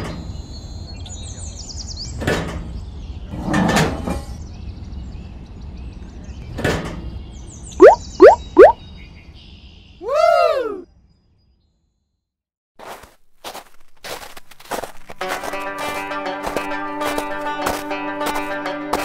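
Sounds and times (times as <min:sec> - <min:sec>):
faint high chirps: 0:07.7 - 0:08.8
rising pops: 0:07.8 - 0:08.8.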